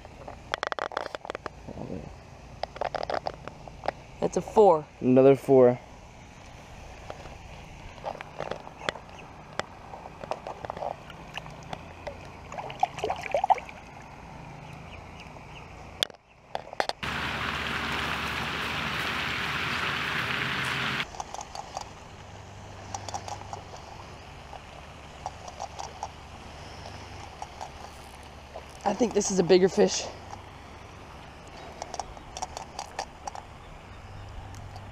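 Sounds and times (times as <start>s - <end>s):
water sloshing and splashing: 6.4s - 15.2s, 16.6s - 33.6s
water lapping: 6.5s - 15.6s, 17.0s - 34.9s
steady hiss: 17.0s - 21.1s.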